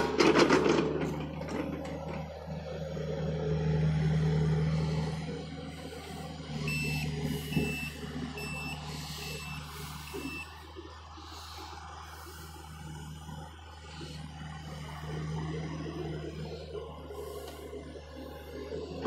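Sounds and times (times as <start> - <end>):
excavator diesel engine running: 0.0 - 19.0
backup alarm beeping: 6.6 - 10.6.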